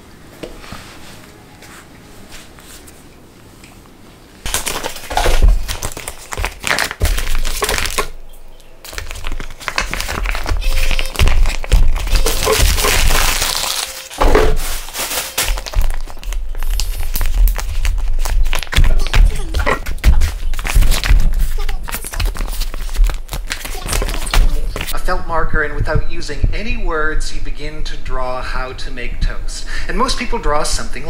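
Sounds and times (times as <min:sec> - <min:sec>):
plastic bags crinkling: 0:04.5 - 0:25.0.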